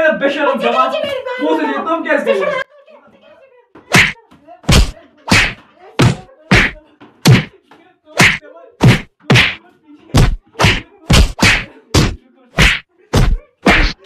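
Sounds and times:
blows landing on a person: 3.9 - 7.5, 8.2 - 9.6, 10.2 - 14.0.

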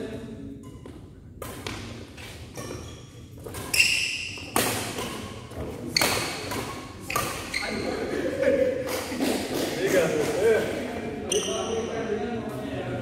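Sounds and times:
racket hitting shuttlecock: 0.6 - 7.9
shoe squeak: 0.6 - 8.1, 11.3 - 11.9.

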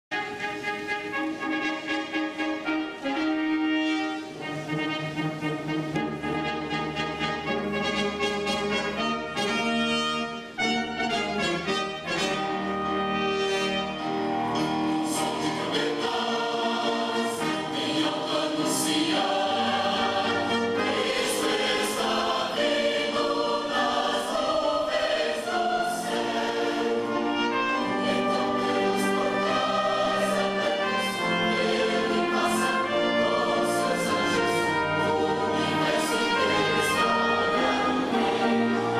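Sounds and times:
symphony orchestra with brass: 0.1 - 38.9
mixed choir singing: 14.5 - 38.9.

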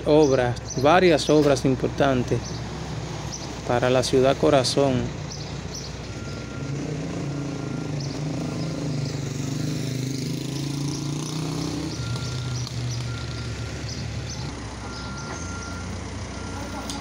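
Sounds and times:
large vehicle engine running: 0.0 - 17.0
faint reversing alarm beeping: 6.1 - 17.0.

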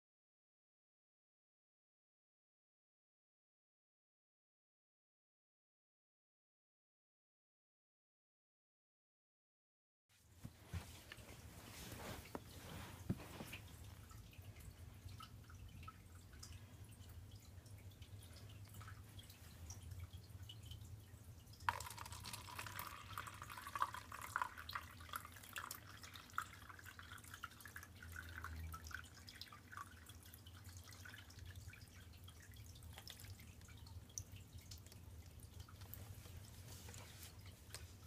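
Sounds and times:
water trickling and splashing: 10.7 - 38.0
water dripping: 13.0 - 38.0.

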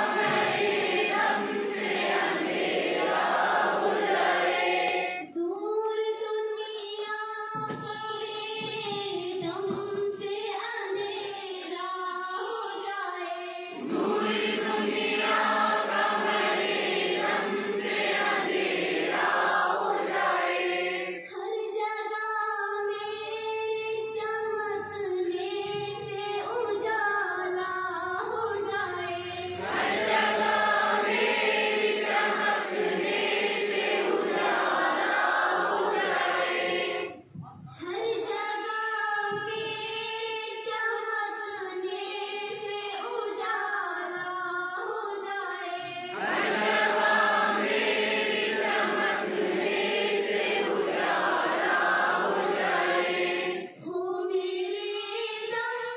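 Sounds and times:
children singing in unison: 0.0 - 5.5, 8.5 - 55.9.

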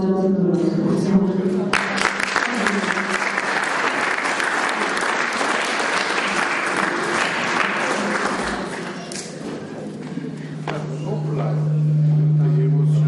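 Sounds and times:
audience applauding: 1.7 - 9.3.

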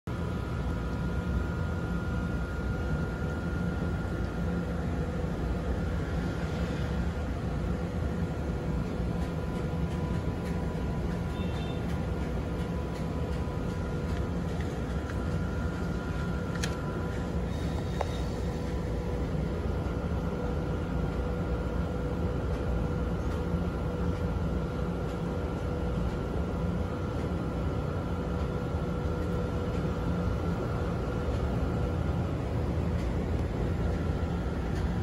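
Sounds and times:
faint constant hum: 0.1 - 35.0.

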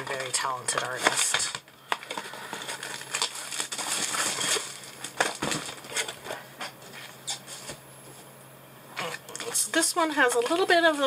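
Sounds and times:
packaging rustling and crinkling: 0.0 - 7.8.

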